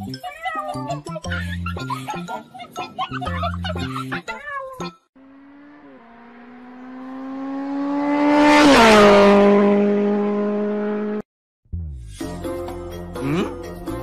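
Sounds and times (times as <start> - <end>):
light music with jingles: 0.0 - 5.0, 12.1 - 14.0
car passing by: 5.2 - 11.2.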